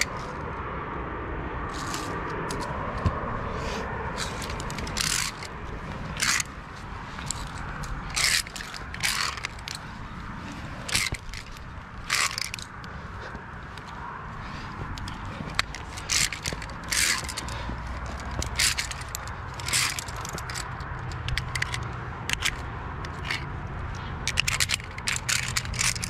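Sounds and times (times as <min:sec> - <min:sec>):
carabiners clinking on steel cable: 0:00.0 - 0:00.5, 0:01.7 - 0:03.0, 0:03.7 - 0:26.0
low wind rumble: 0:00.0 - 0:26.0.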